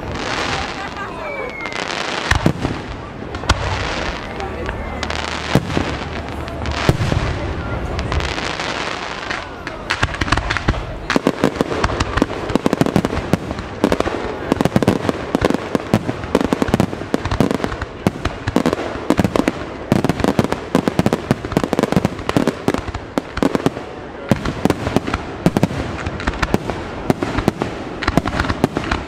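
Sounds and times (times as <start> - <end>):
fireworks bangs: 0.0 - 29.0.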